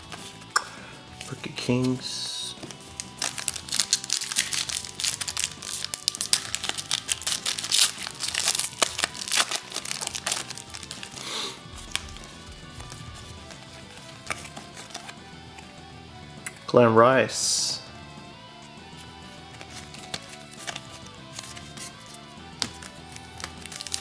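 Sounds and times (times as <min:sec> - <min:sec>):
foil wrapper crinkling and tearing: 0:02.7 - 0:11.2, 0:22.6 - 0:24.0.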